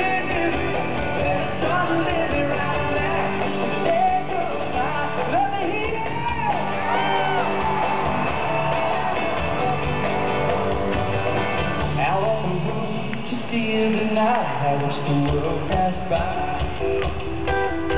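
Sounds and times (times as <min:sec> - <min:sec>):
voices singing: 0:00.0 - 0:10.6
live rock country band: 0:00.0 - 0:17.9
crowd whooping and shouting: 0:02.5 - 0:11.8.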